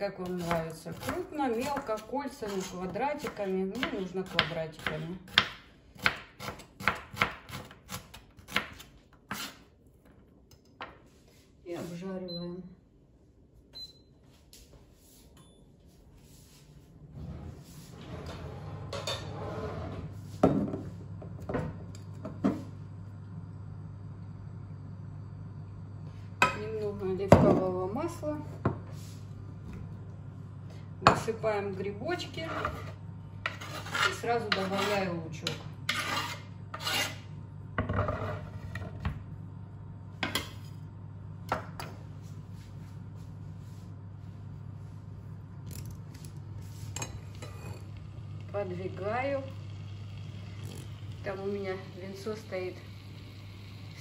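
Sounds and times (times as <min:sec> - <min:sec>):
steady low hum: 0:09.7 - 0:54.0
cookware clanking: 0:18.8 - 0:19.4.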